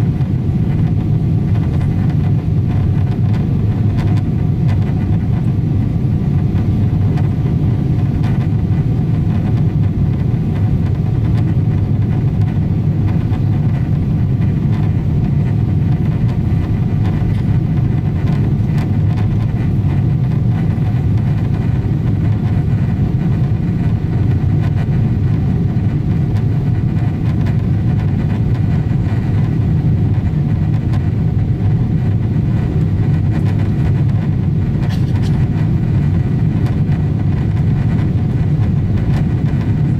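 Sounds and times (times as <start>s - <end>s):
airplane cabin engine rumble: 0.0s - 39.9s
faint hum tones: 0.0s - 39.9s.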